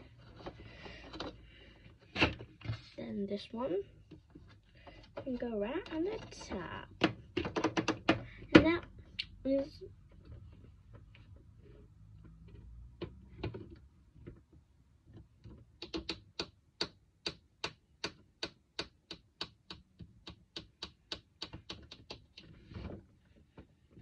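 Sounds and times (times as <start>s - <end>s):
sharp plastic clicks: 15.8s - 22.5s.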